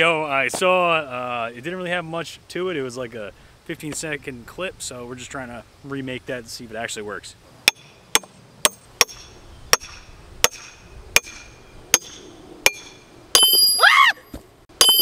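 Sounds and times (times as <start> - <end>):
sledgehammer striking steel wedge: 7.6 - 13.9, 14.8 - 15.0.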